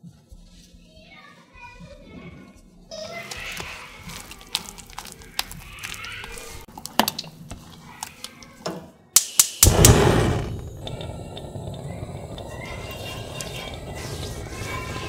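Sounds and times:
gas stove igniter clicking: 9.2s - 13.9s
gas burner whoosh: 9.6s - 15.0s.

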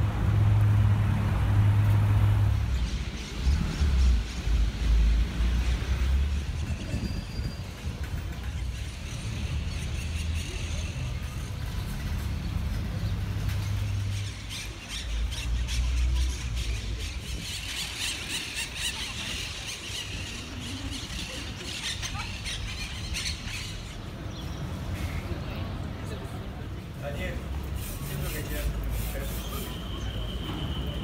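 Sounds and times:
traffic rumble: 0.0s - 31.0s
wind: 0.0s - 31.0s
birds chirping and squawking: 13.0s - 24.5s.

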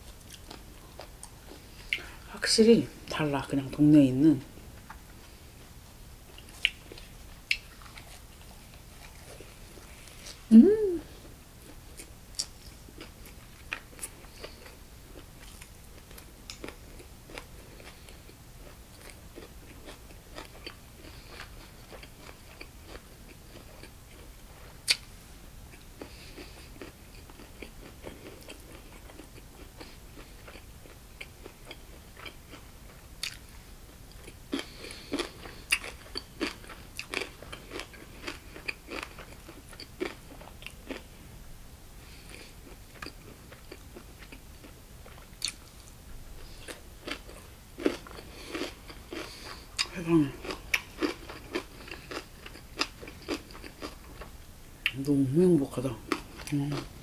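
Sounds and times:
close chewing: 0.0s - 2.1s, 6.3s - 10.5s, 11.6s - 25.0s, 25.7s - 33.4s, 34.1s - 41.0s, 45.0s - 55.0s.

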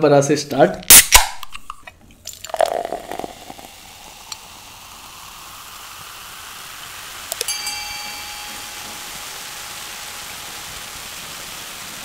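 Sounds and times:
fizzing carbonation: 0.9s - 12.0s
soda splashing and gurgling: 2.2s - 7.6s.

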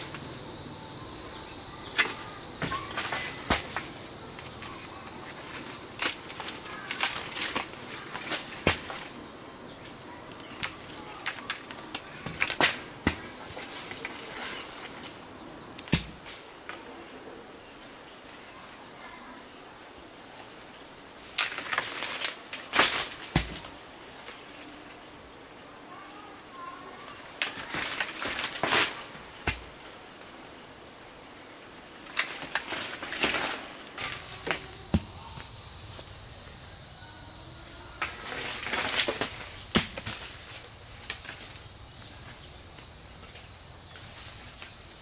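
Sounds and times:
insects chirring: 0.0s - 45.0s
sharp knocks and rustles: 1.9s - 9.2s, 32.1s - 36.1s, 38.0s - 45.0s.

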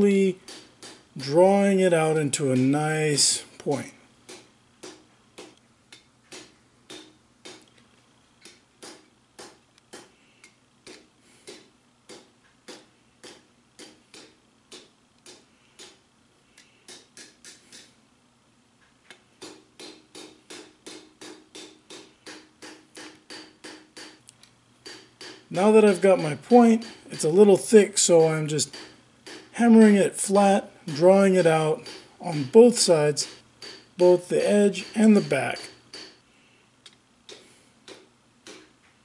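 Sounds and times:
hammer striking hot steel on anvil: 0.0s - 5.5s, 6.3s - 7.6s, 10.9s - 16.0s, 16.9s - 17.9s, 19.4s - 24.2s, 24.8s - 36.2s, 37.3s - 38.7s.

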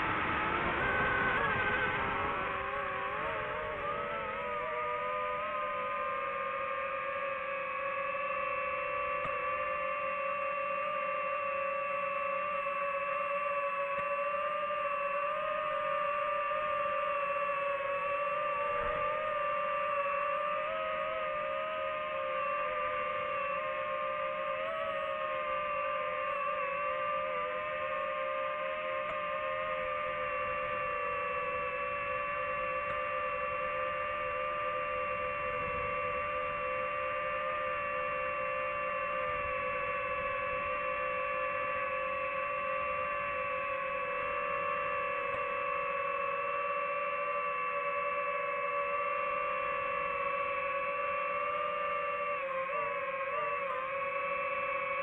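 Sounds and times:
drone propeller motors whining: 0.0s - 55.0s.

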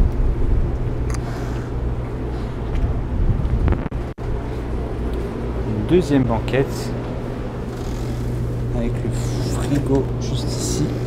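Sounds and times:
low hum and rumble: 0.0s - 11.0s
wind buffeting microphone: 1.8s - 4.1s.

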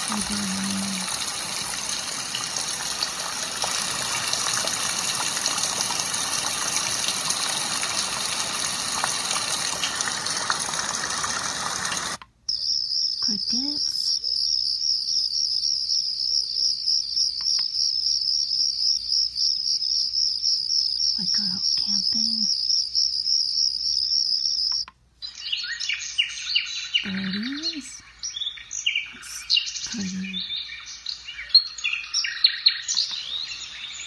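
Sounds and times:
recorded rushing water: 0.0s - 12.2s
recorded crickets chirping: 0.0s - 34.0s.

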